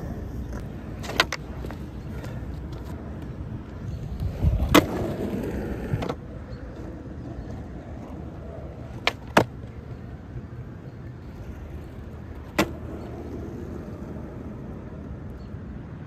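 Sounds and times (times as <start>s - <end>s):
skateboard clacking against curb: 0.0s - 10.0s, 11.3s - 14.9s
skateboard wheels rolling on pavement: 0.0s - 16.0s
skateboard slapped onto asphalt: 0.5s - 3.3s, 4.6s - 6.2s, 8.9s - 9.8s, 12.4s - 13.1s.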